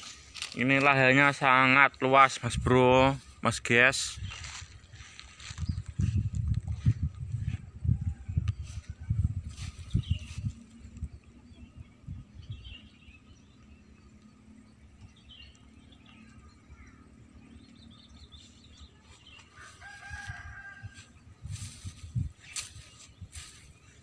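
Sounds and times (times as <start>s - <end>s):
small birds chirping: 0.0s - 24.0s
rooster crowing: 19.5s - 21.1s.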